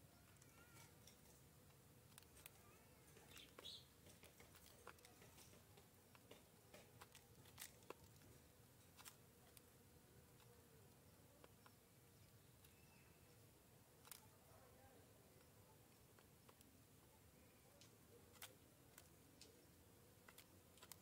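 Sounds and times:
faint high bird chirps: 0:02.4 - 0:04.0, 0:11.0 - 0:13.5, 0:14.2 - 0:18.2.

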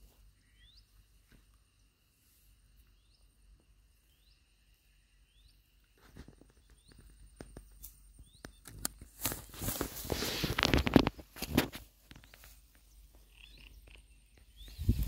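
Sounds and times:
bird chirping: 0:00.2 - 0:08.9, 0:12.2 - 0:15.0
clicks and rustles of handling fish: 0:08.5 - 0:12.8.

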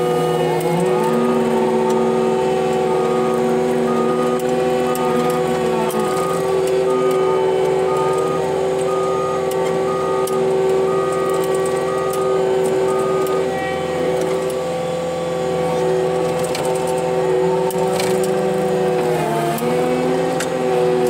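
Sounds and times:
diesel engine and hydraulics running: 0:00.0 - 0:21.0
backup alarm beeping: 0:00.8 - 0:15.4.

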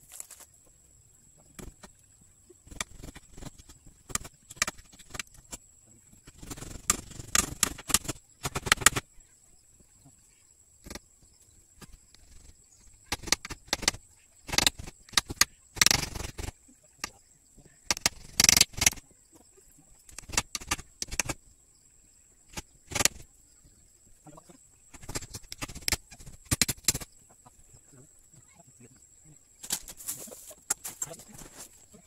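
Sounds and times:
wooden sticks knocking and clattering: 0:02.7 - 0:05.6, 0:06.2 - 0:09.0, 0:13.1 - 0:17.2, 0:17.9 - 0:19.0, 0:20.1 - 0:21.4, 0:24.9 - 0:27.1.

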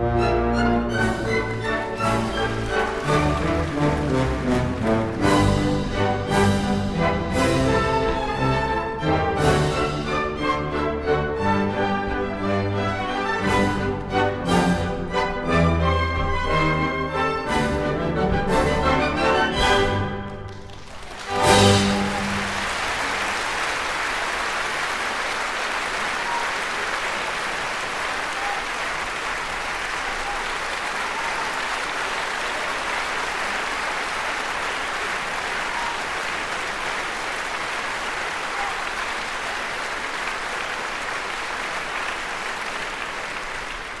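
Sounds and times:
audience applauding: 0:00.7 - 0:08.7, 0:19.6 - 0:44.0.

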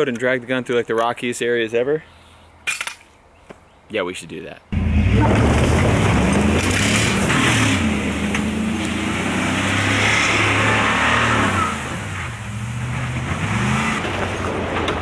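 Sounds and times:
truck engine revving: 0:04.8 - 0:15.0
tyres churning dirt: 0:04.8 - 0:15.0.

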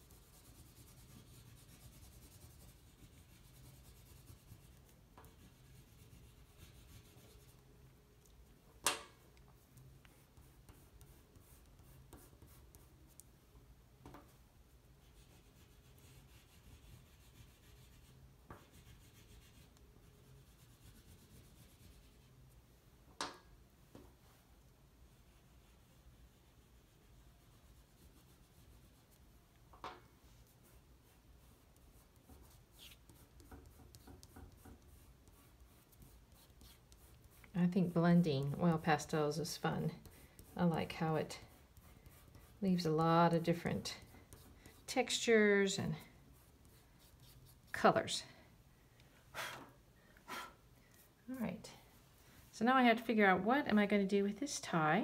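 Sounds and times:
oil pastel rubbing on paper: 0:00.0 - 0:07.6, 0:15.0 - 0:22.4, 0:25.2 - 0:29.3, 0:30.3 - 0:47.8.

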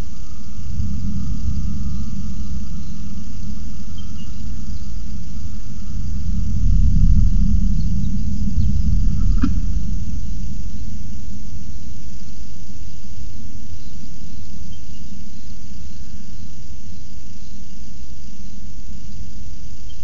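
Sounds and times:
deep rumble: 0:00.0 - 0:14.4.

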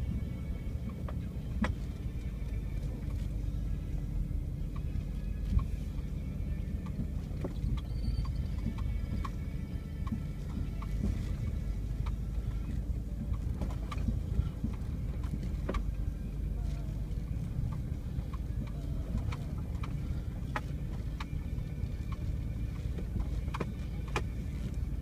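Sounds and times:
vehicle engine running low: 0:00.0 - 0:25.0
light knocks and rattles: 0:06.8 - 0:25.0.

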